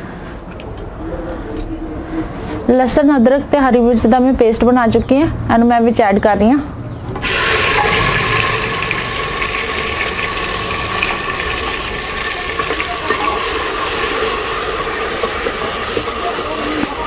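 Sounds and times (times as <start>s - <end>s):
paste sizzling in hot oil: 7.2s - 17.0s.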